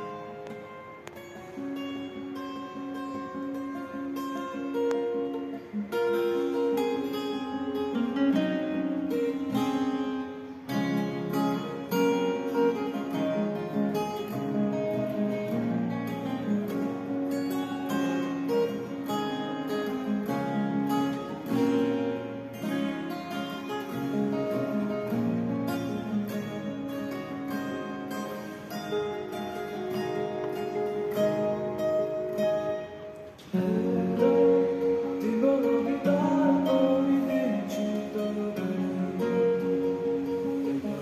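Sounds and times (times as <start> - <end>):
acoustic guitars playing: 0.0 - 41.0.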